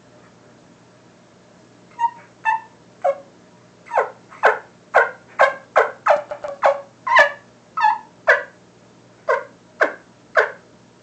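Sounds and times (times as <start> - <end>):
turkey call yelping: 1.9 - 3.2, 3.9 - 8.6, 9.3 - 10.6.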